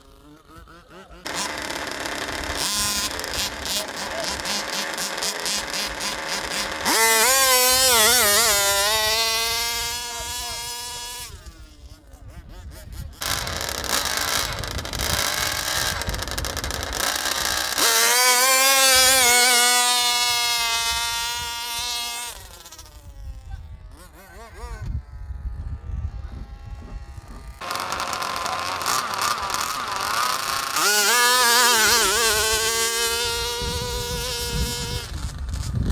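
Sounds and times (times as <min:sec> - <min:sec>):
small two-stroke engine revving: 0:00.0 - 0:35.9
engine idling with rapid ticking: 0:27.6 - 0:31.2.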